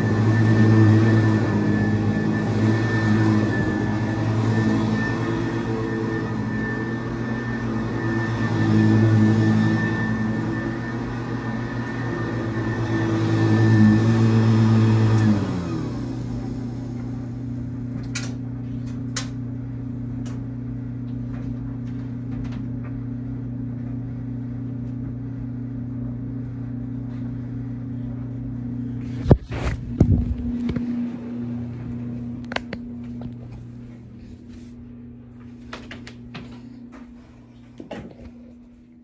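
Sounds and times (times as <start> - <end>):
vacuum cleaner motor hum and whine: 0.0 - 39.0.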